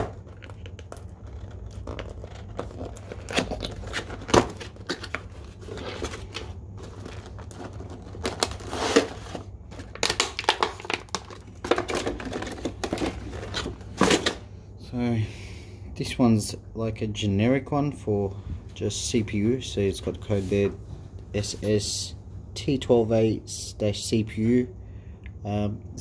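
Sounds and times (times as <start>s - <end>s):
cardboard box rustling and scraping: 0.0s - 10.0s, 11.9s - 14.3s.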